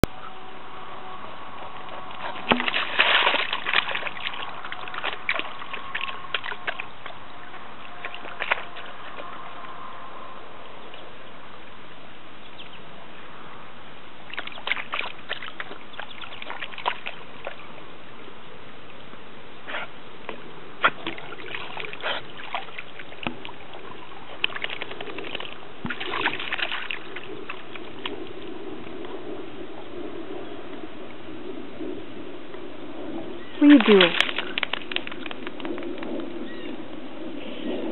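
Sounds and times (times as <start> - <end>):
puppy splashing in puddles: 1.5 - 9.9, 14.2 - 17.9, 20.8 - 29.0, 33.6 - 36.5.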